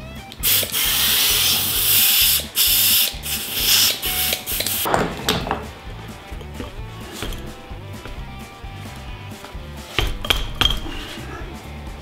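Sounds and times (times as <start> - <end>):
compressed air hissing: 0.3 - 4.9
low rough noise: 4.6 - 11.6.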